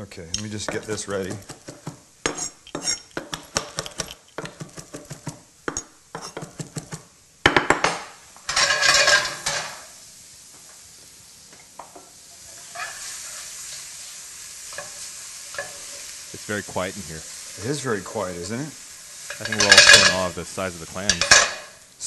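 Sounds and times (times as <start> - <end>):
skillet sizzling: 0.0 - 22.0
spoon scraping in pan: 0.4 - 6.9, 8.5 - 10.0, 12.2 - 16.5, 17.2 - 21.8
knife chopping on wooden board: 0.7 - 2.5.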